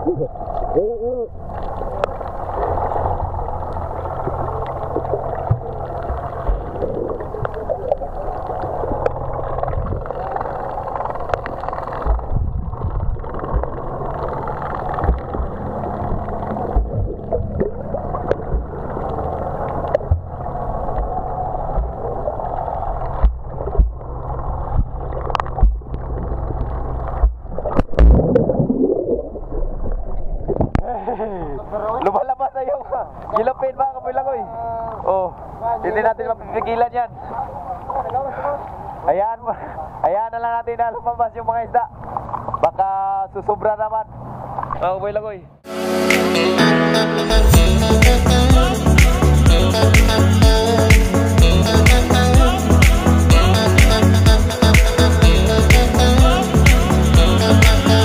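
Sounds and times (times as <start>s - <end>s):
underwater bubbling and rushing water: 0.0s - 31.0s, 36.4s - 39.1s, 41.8s - 42.9s, 44.1s - 44.8s
low engine hum: 1.3s - 28.1s
underwater knocks: 4.2s - 7.6s, 11.3s - 19.2s, 19.8s - 22.2s, 23.0s - 28.6s.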